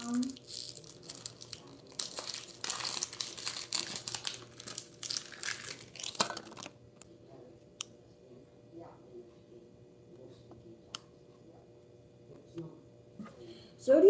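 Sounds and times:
foil wrapper crinkling and tearing: 0:00.1 - 0:06.8.

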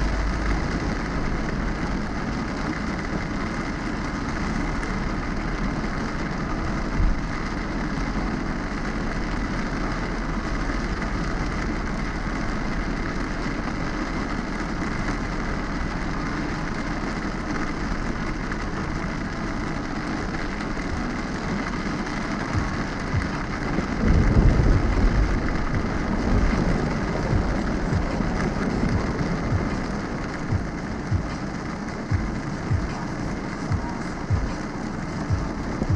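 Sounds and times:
car running noise: 0:00.0 - 0:35.9
deep low rumble: 0:00.0 - 0:35.9
heavy rain on car: 0:00.0 - 0:35.9.

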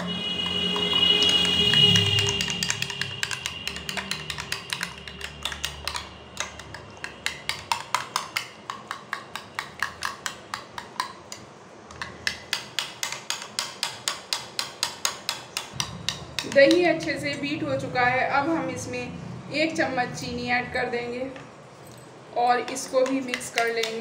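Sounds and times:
fork clicking against glass bowl: 0:01.3 - 0:11.4.

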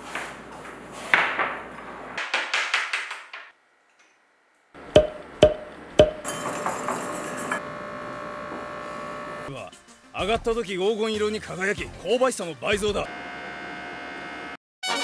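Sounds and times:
sharp knocks with ring: 0:05.0 - 0:06.3
background music: 0:09.5 - 0:13.1.

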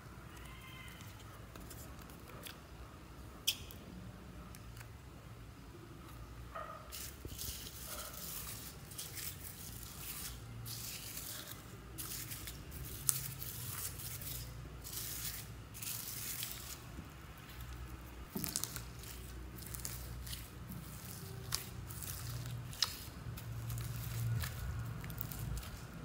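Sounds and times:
foam beads crackling and rustling: 0:06.9 - 0:26.0.

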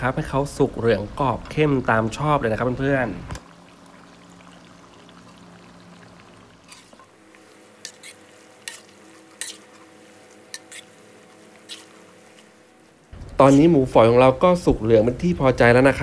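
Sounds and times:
meat sizzling in hot oil: 0:03.4 - 0:13.9.

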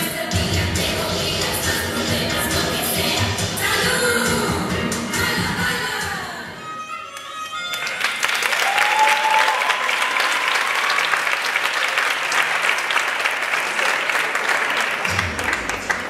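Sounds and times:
music: 0:00.0 - 0:08.7, 0:15.1 - 0:16.0
audience applauding: 0:07.6 - 0:16.0
crowd cheering: 0:07.6 - 0:16.0.

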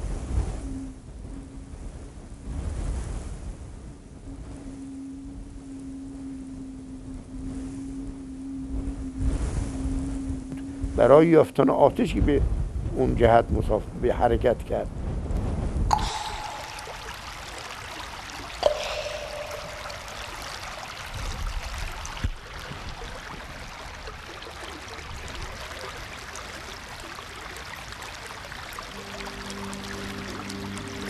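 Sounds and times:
sharp ringing drop strikes: 0:15.9 - 0:21.5
rain and running water: 0:15.9 - 0:31.0.

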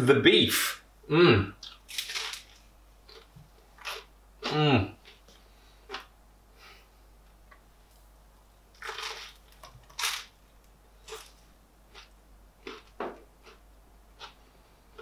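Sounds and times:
crisp bread crunching: 0:01.8 - 0:04.1, 0:08.8 - 0:10.3.

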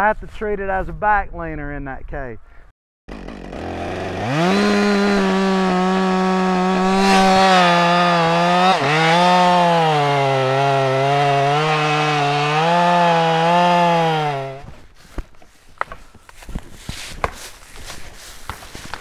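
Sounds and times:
chainsaw cutting wood: 0:03.1 - 0:14.8.

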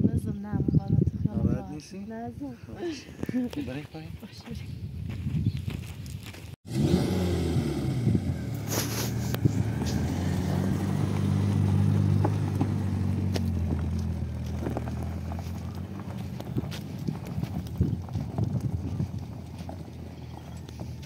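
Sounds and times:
car engine at low revs: 0:06.7 - 0:21.0.

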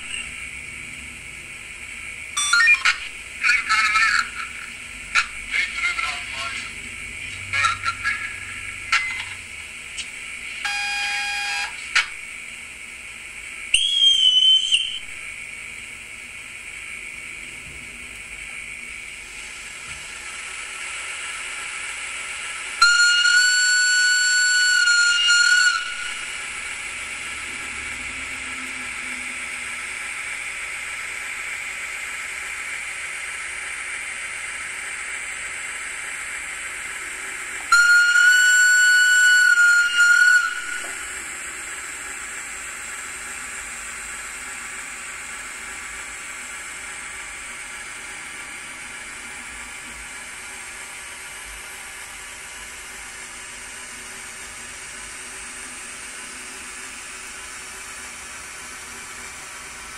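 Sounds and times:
model train horn: 0:10.6 - 0:12.1, 0:22.8 - 0:26.4, 0:37.6 - 0:41.1.

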